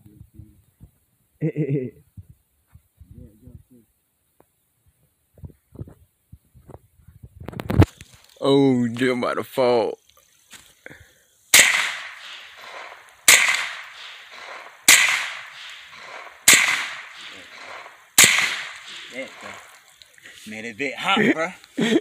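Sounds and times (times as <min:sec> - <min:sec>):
gunshots with echo: 0:11.6 - 0:19.8.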